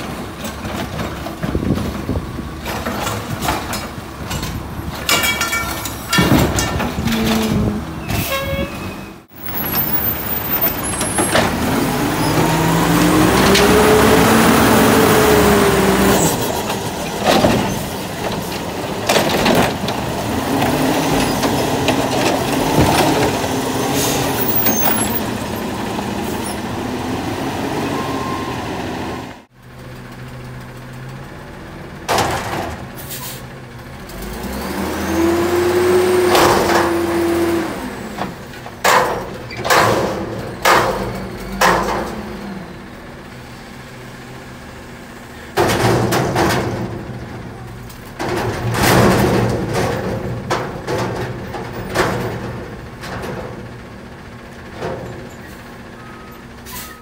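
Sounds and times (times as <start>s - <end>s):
truck engine and hydraulics drone: 0.0s - 57.0s
bins banging against metal arms: 2.8s - 7.7s
air brakes hissing: 33.0s - 33.5s, 55.3s - 57.0s.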